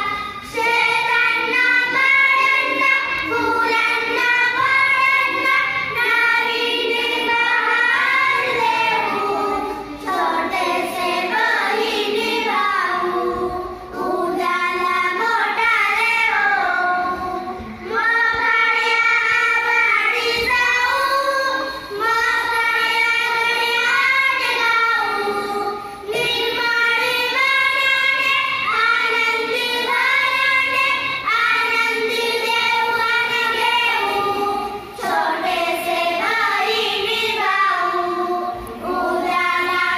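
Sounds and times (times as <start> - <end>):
girls singing in unison: 0.0 - 39.9.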